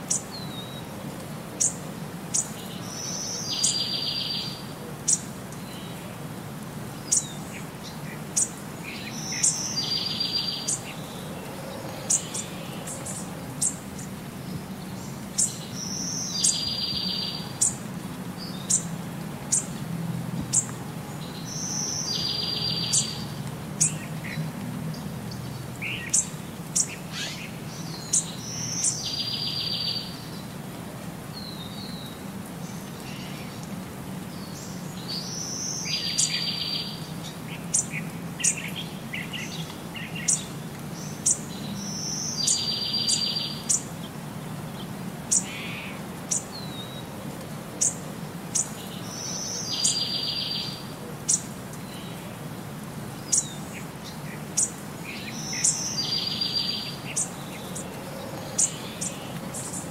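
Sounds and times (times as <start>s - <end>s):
birds chirping and trilling: 7.0s - 17.8s, 20.5s - 30.5s, 34.4s - 47.0s, 47.8s - 52.2s, 53.2s - 59.9s.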